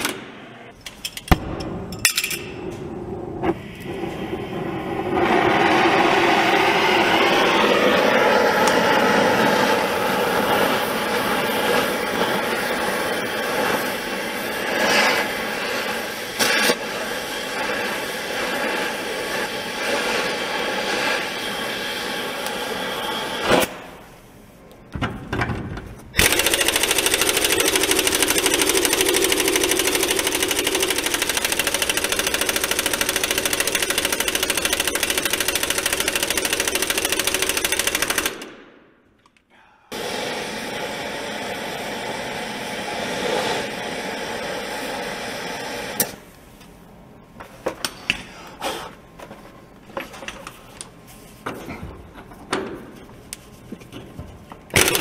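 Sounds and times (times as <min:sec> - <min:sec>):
impact wrench rattling: 0:26.2 - 0:38.5, 0:54.7 - 0:55.0.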